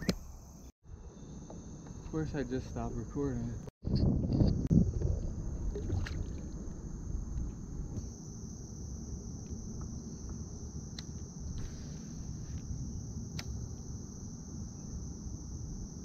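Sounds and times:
crickets droning: 0.0s - 16.0s.

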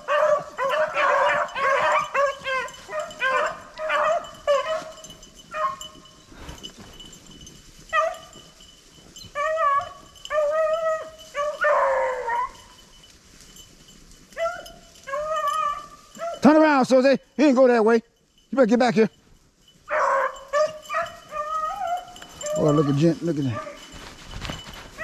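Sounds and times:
dog howling: 0.0s - 4.9s, 9.3s - 12.8s, 14.4s - 16.4s, 19.9s - 23.9s
dogs baying: 0.0s - 6.7s, 7.9s - 13.1s, 14.3s - 16.7s, 19.7s - 25.0s.

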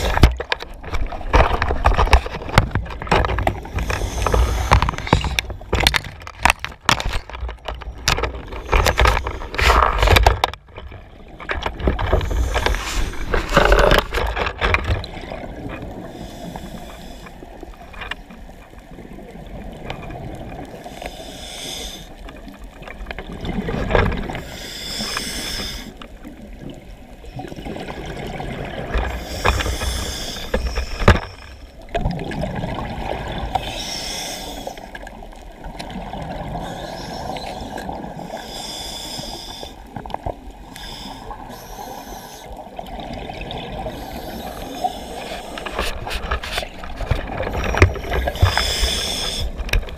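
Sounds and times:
muffled water sounds: 0.0s - 49.9s
short hissing bursts: 21.1s - 22.1s, 24.6s - 25.9s, 33.6s - 34.8s, 48.3s - 49.6s.

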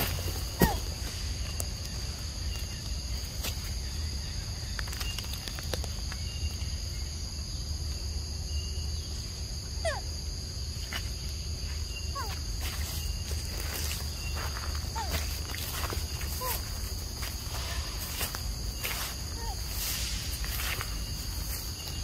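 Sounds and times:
crickets and cicadas chorus: 0.0s - 22.0s
leaves rustling: 10.8s - 22.0s.

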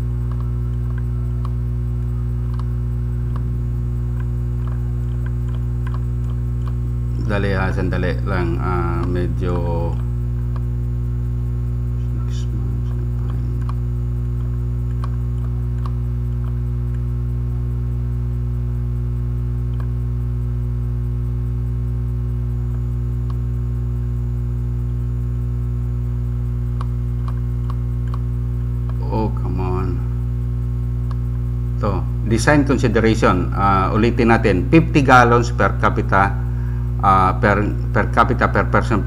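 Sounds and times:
electrical mains hum: 0.0s - 39.0s
faint clicks: 0.2s - 3.5s.

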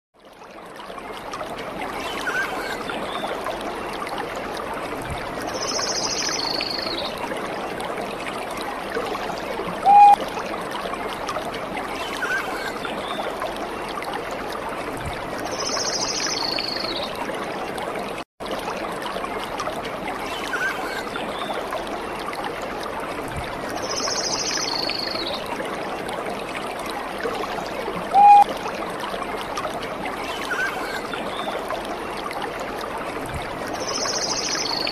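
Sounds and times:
trickling stream: 0.2s - 34.9s
whistled note: 9.9s - 10.2s, 28.2s - 28.4s.

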